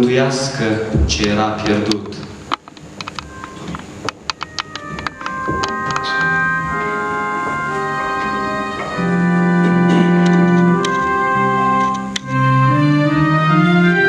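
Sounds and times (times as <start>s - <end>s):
electronic keyboard organ chords: 0.0s - 14.0s.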